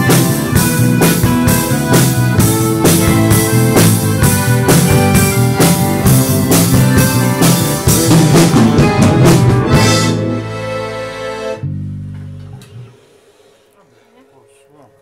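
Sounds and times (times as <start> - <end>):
accordion: 0.0 - 11.7
drum kit beat: 0.0 - 12.1
rock band playing: 0.0 - 12.6.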